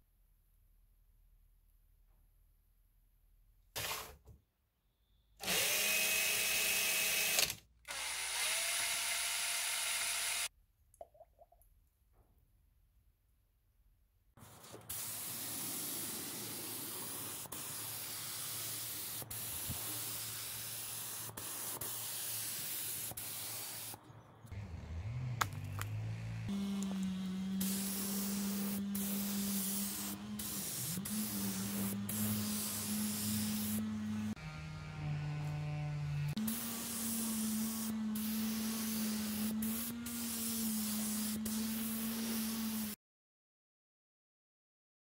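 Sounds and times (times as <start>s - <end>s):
spray gun hissing: 14.6s - 24.0s, 26.5s - 34.3s, 36.4s - 43.0s.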